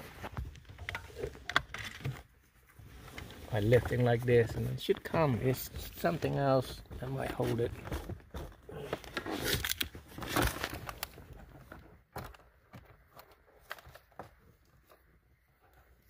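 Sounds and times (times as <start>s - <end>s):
papers rustling: 2.7s - 15.1s.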